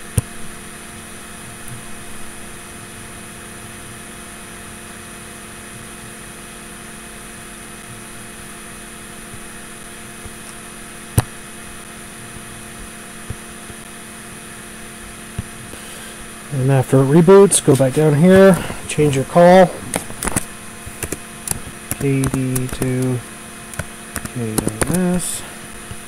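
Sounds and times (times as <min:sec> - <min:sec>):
electrical hum with high whine: 0:00.0 - 0:26.0
sharp click: 0:19.9 - 0:23.1.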